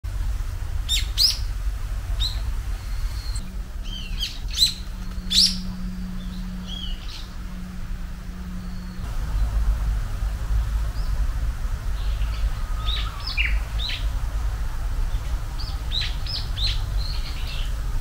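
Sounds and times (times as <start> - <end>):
low hum: 0.1 - 18.0
bird chirping: 0.9 - 1.5, 2.1 - 7.4, 12.0 - 14.1.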